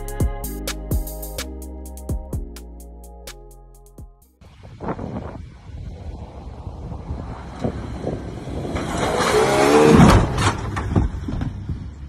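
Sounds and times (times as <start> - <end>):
wheels spinning in dirt: 5.0 - 12.0
truck engine accelerating past: 7.0 - 12.0.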